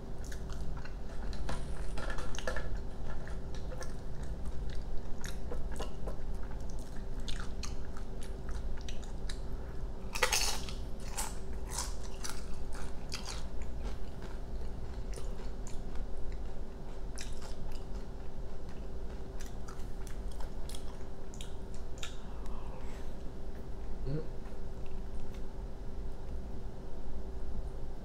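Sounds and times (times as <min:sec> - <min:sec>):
crisp chewing: 0:00.2 - 0:22.6
tortilla chip crunch: 0:10.0 - 0:22.2.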